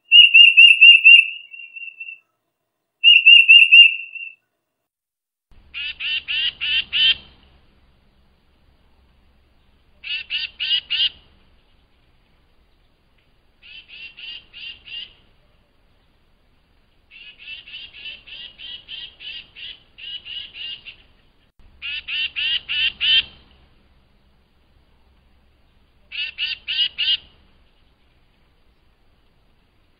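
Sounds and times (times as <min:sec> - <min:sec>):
bird calling rapid repeated notes: 0:00.0 - 0:02.2, 0:03.0 - 0:04.4, 0:05.7 - 0:07.2, 0:10.0 - 0:11.2, 0:17.1 - 0:21.1, 0:21.8 - 0:23.4, 0:26.1 - 0:27.3.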